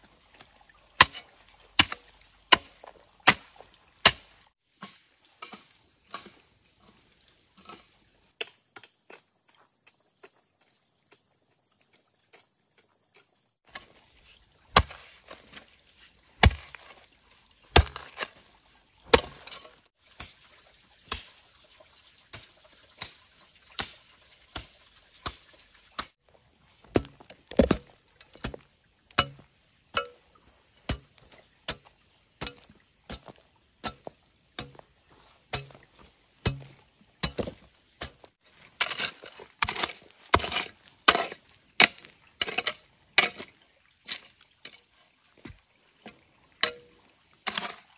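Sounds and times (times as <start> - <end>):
blade chopping wood: 1.8 - 4.3, 14.7 - 15.1, 16.4 - 16.9, 17.7 - 18.4, 19.1 - 20.4, 26.9 - 28.6, 29.2 - 29.4, 30.9 - 34.8, 35.5 - 43.4.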